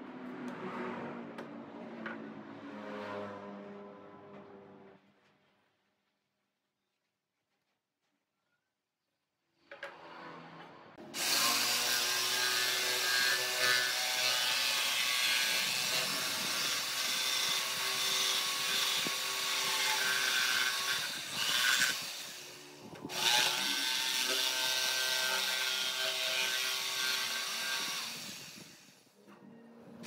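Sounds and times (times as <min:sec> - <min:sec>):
jigsaw cutting wood: 0:11.0 - 0:29.0.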